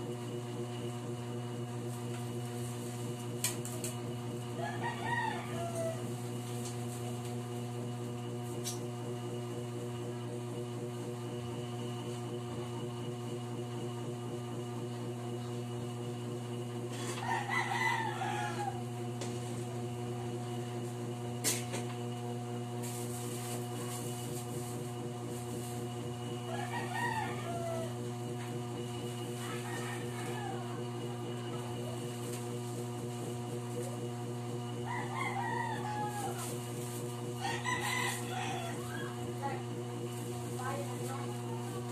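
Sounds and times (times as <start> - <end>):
rooster crowing: 4.5 - 6.3, 16.9 - 18.9, 26.4 - 28.1, 29.1 - 31.2, 34.8 - 36.6, 37.4 - 39.3.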